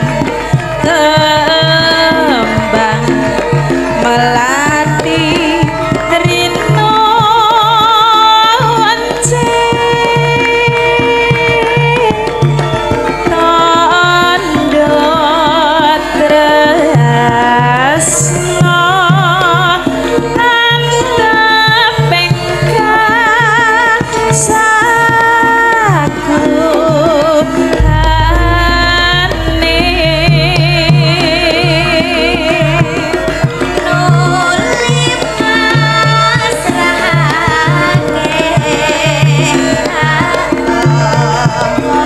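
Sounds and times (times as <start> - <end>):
hand drum: 0.0 - 42.0
live band playing: 0.0 - 42.0
woman singing ornamented melody: 4.0 - 12.2, 20.4 - 40.5
deep bass: 27.8 - 32.4.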